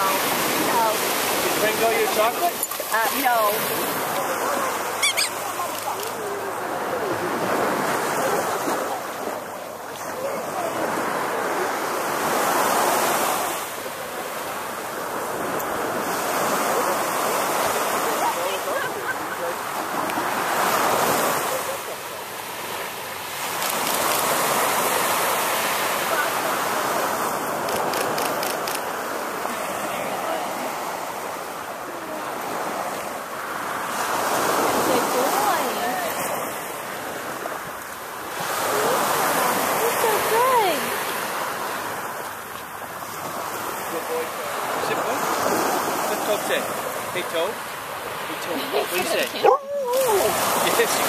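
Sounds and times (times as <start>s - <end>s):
surf washing ashore: 0.0s - 51.0s.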